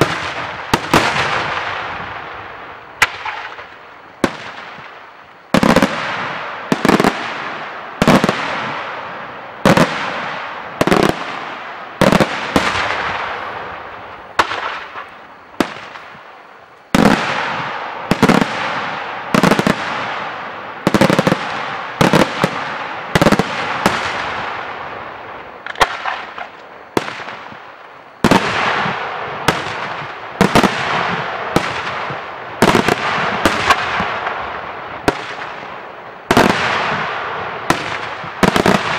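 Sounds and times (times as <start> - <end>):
fireworks shells bursting: 9.6 - 24.6.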